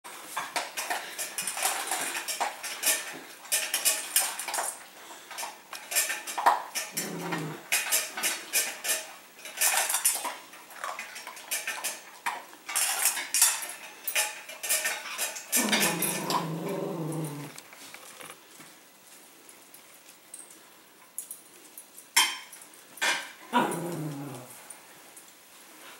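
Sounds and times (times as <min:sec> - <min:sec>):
metal food bowls clanking: 0:00.2 - 0:17.8
dog whining: 0:06.9 - 0:07.6, 0:15.6 - 0:17.6, 0:23.5 - 0:24.6.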